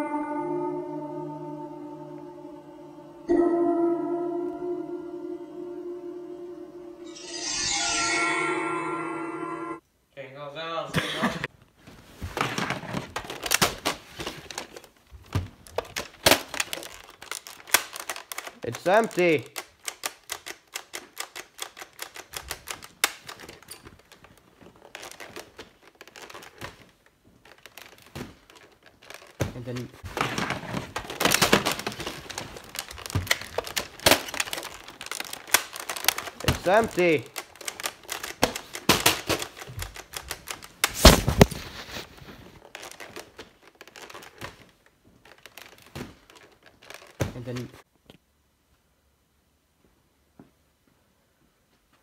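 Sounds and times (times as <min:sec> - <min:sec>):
plastic toy blaster clicking: 0:15.8 - 0:23.7, 0:31.1 - 0:41.0
handling rustle: 0:20.8 - 0:47.8.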